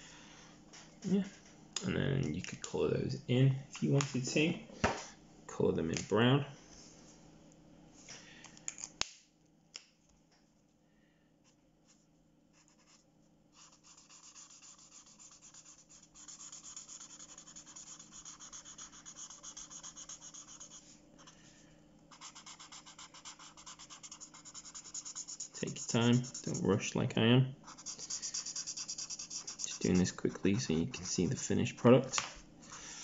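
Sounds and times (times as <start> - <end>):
marker scratching on paper: 13.6 - 21.3, 22.1 - 26.9, 27.6 - 31.5.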